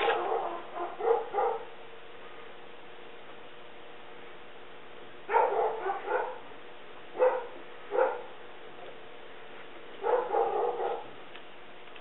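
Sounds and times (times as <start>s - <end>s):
dog barking: 0.0s - 1.7s, 5.3s - 6.5s, 7.2s - 8.4s, 10.0s - 11.2s.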